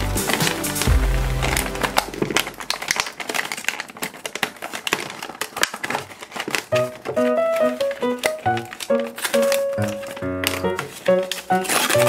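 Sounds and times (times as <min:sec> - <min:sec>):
music: 0:00.0 - 0:02.4, 0:06.7 - 0:12.0
plastic bag crinkling: 0:00.0 - 0:12.0
plastic toy pieces clicking: 0:00.2 - 0:12.0.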